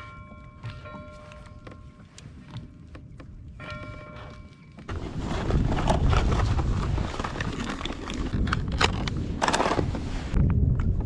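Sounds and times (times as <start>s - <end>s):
wind buffeting microphone: 0.0s - 11.0s.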